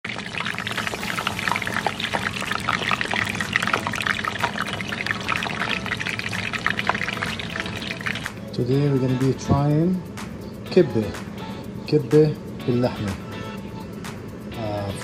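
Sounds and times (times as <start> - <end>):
oil sizzling with crackles: 0.0 - 8.4.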